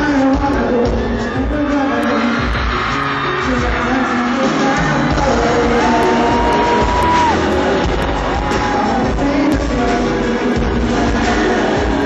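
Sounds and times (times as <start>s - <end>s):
live pop music over speakers: 0.0s - 12.0s
person singing long high note: 3.3s - 12.0s.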